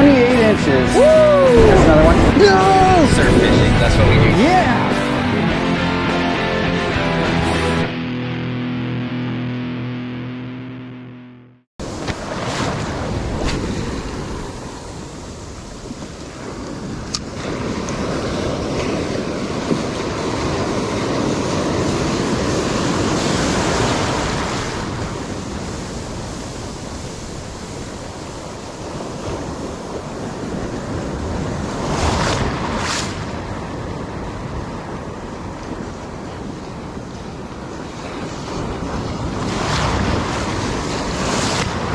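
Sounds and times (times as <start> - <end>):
wind buffeting microphone: 0.0 - 4.8, 11.8 - 41.9
ocean surf breaking: 0.0 - 8.2, 11.8 - 41.9.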